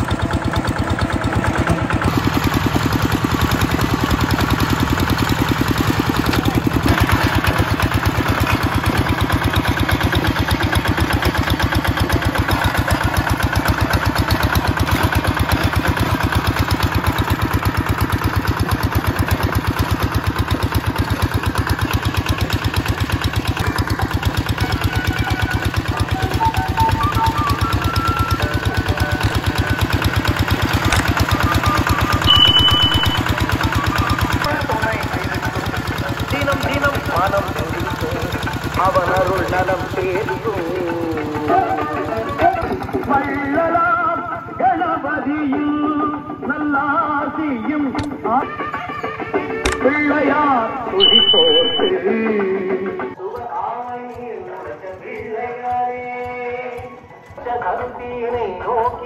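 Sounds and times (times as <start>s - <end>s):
diesel tractor engine running: 0.0s - 59.0s.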